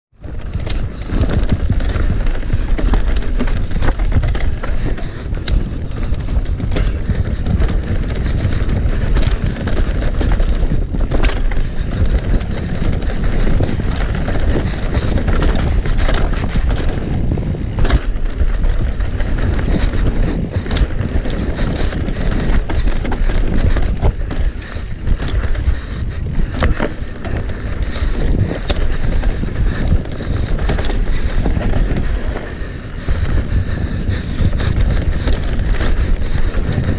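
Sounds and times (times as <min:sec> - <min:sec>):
bike tyres rumbling on dirt: 0:00.1 - 0:36.9
wheels knocking on roots: 0:00.2 - 0:36.9.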